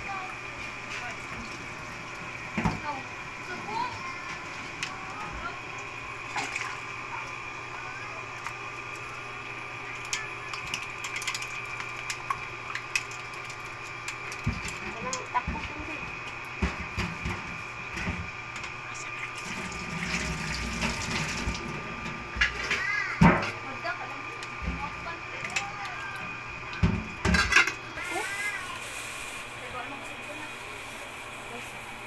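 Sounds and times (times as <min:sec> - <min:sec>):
eels knocking against a pot: 0:10.0 - 0:18.8.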